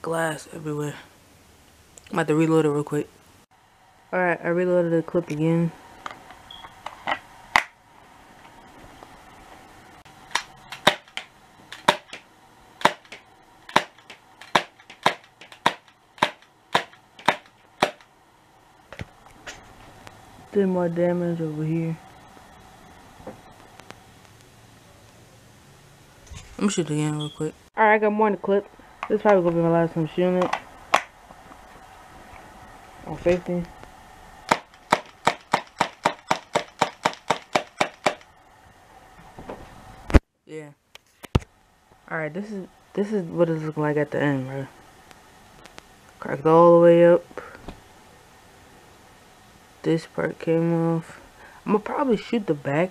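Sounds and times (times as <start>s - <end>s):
bb pistol shots: 12.8s - 18.0s.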